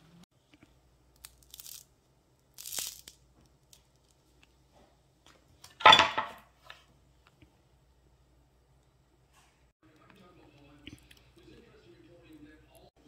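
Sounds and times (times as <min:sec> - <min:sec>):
bread crust crackling: 0:00.4 - 0:05.2.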